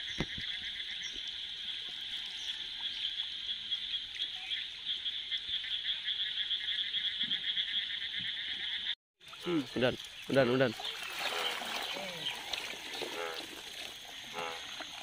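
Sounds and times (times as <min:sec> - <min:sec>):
frog chorus: 0:00.0 - 0:15.0.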